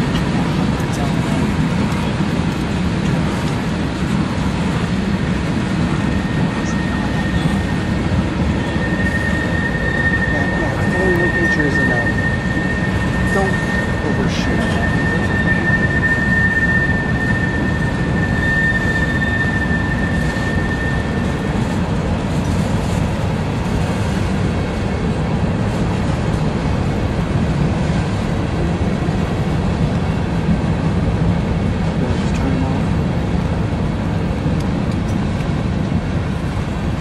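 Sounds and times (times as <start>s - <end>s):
train wheels rumbling on rail: 0.0s - 37.0s
high-pitched squeal: 5.8s - 23.1s.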